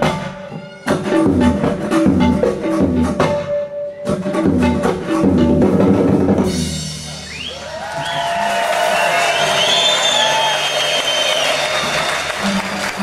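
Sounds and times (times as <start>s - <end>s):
tabla and drum kit playing: 0.0s - 13.0s
whistles from audience: 7.1s - 12.4s
audience cheering: 7.2s - 13.0s.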